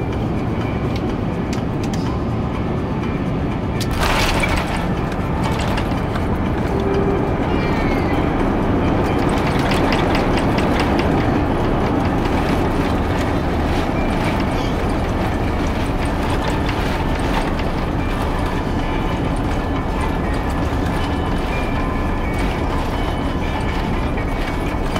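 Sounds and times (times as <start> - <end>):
rumble of wheels and air: 0.0 - 24.9
landing gear bumps: 3.8 - 6.9.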